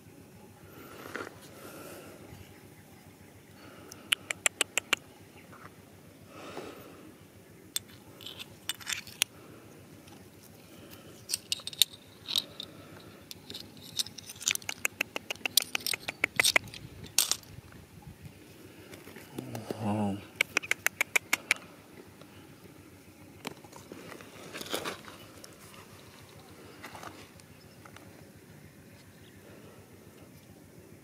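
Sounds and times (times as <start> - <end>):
pebbles clicking and scraping: 7.8 - 9.4, 10.0 - 17.6, 23.4 - 28.0.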